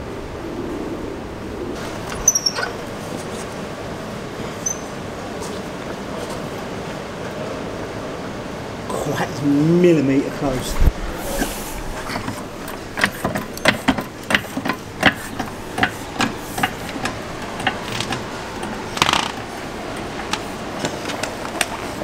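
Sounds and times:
metal rattle: 0:11.8 - 0:22.0
trolley jack clicks and knocks: 0:12.2 - 0:22.0.

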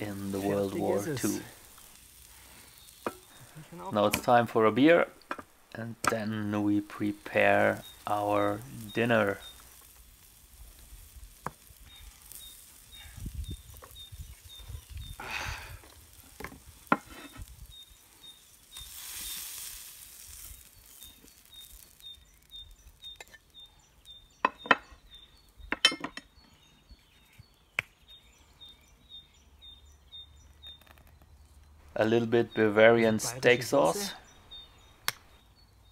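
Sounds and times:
steak sizzling on hot steel: 0:00.0 - 0:25.8.

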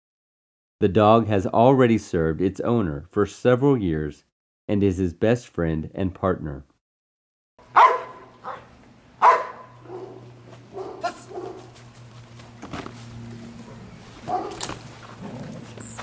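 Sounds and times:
large dog barking: 0:07.7 - 0:11.8, 0:13.6 - 0:15.6.

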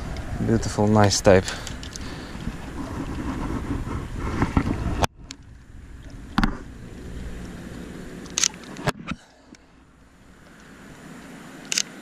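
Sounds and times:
wind buffeting the microphone: 0:00.0 - 0:09.2.

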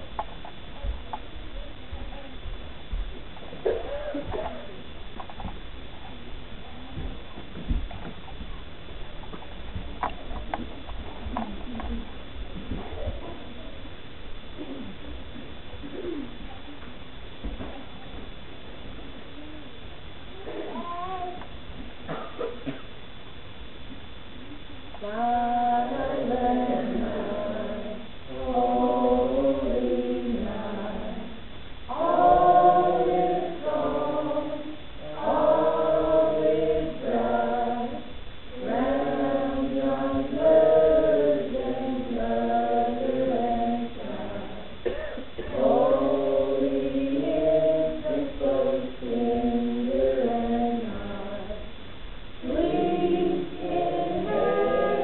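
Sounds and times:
choir singing unaccompanied: 0:25.0 - 0:51.8, 0:52.4 - 0:55.0.

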